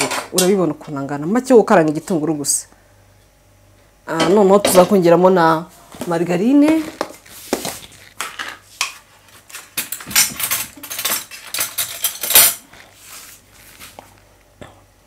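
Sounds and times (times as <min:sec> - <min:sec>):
plastic tub and utensils clattering: 0:09.6 - 0:12.6.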